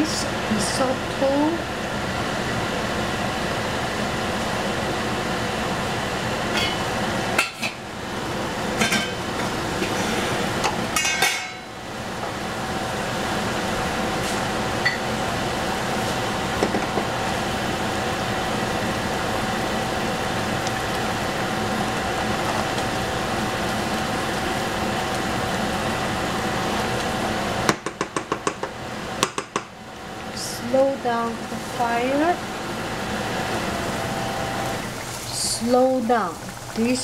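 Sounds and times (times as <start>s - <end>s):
gas burner flame hissing: 0.0s - 37.0s
wooden spoon tapping on pan: 27.7s - 29.7s.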